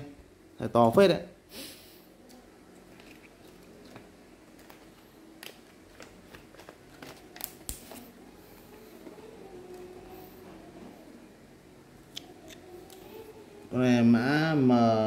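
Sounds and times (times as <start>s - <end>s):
plastic bags crinkling: 2.8s - 8.1s.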